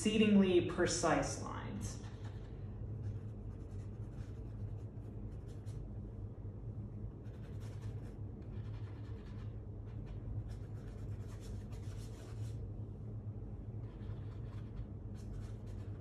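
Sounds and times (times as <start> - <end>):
steady low hum: 0.0 - 16.0
paintbrush strokes on paper: 1.9 - 5.9, 7.3 - 12.6.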